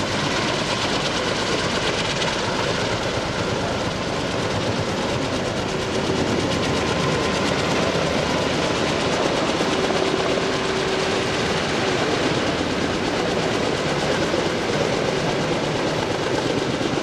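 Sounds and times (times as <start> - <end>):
helicopter engine noise: 0.0 - 17.0
helicopter rotor blades chopping: 0.0 - 17.0.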